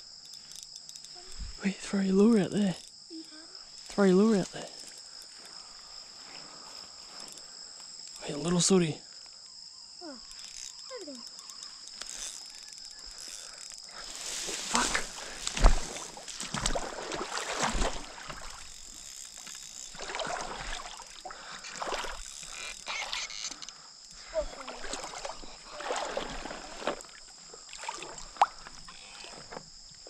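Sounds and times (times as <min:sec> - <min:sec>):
fish splashing at water surface: 0:14.6 - 0:18.7, 0:19.9 - 0:22.2, 0:24.7 - 0:27.1.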